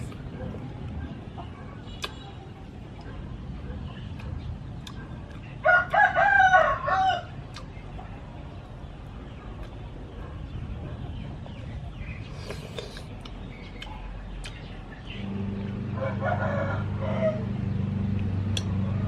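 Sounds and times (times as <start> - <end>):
rooster crowing: 5.6 - 7.3, 15.9 - 17.5.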